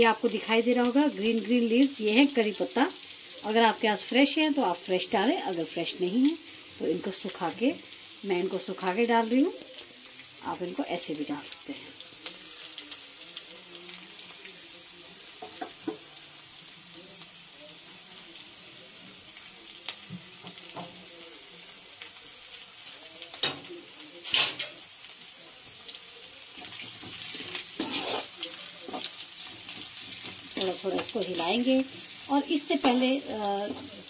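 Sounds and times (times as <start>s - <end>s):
spices sizzling in hot oil: 0.0s - 34.0s
metal ladle scraping pan: 27.1s - 29.0s.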